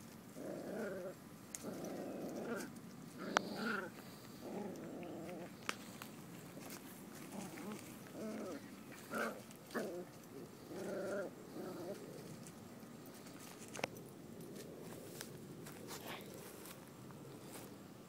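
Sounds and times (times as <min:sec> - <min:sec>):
puppies growling: 0:00.0 - 0:16.5.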